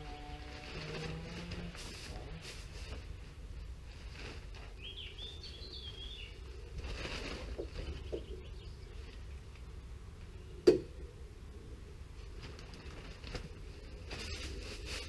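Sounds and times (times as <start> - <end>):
plastic membrane rustling: 0.0 - 5.0, 12.2 - 15.0.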